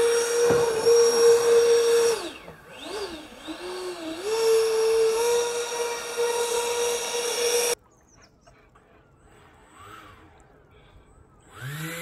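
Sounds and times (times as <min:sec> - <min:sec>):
electric fan whining: 0:00.0 - 0:07.8.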